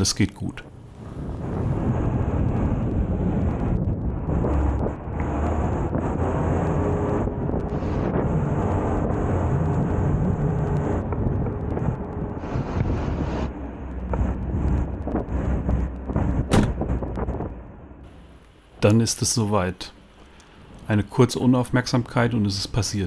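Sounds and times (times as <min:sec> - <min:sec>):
truck engine low rumble: 0:00.0 - 0:23.0
wind noise on microphone: 0:00.6 - 0:18.0.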